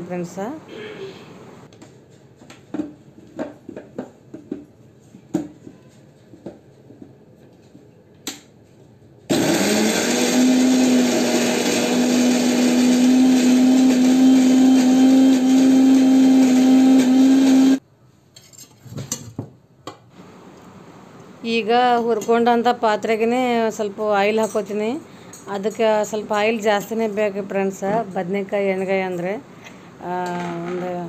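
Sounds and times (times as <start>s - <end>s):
mixer grinder motor whining: 9.3s - 17.8s.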